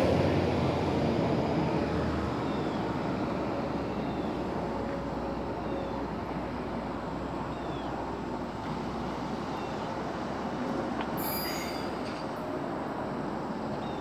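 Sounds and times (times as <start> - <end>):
train engine and rolling rumble: 0.0 - 14.0
high-pitched wheel squeal: 11.2 - 12.2.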